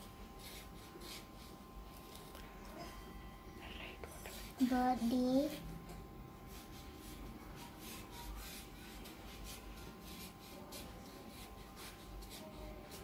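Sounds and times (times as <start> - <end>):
pen scratching on paper: 0.4 - 1.5.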